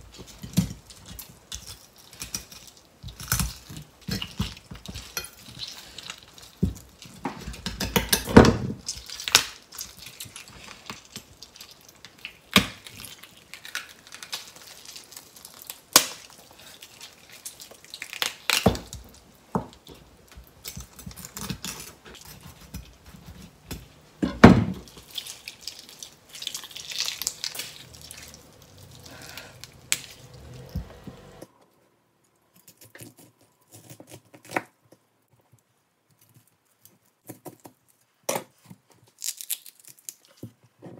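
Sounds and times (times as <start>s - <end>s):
cutting and handling sounds: 0.0s - 24.0s, 32.5s - 40.9s.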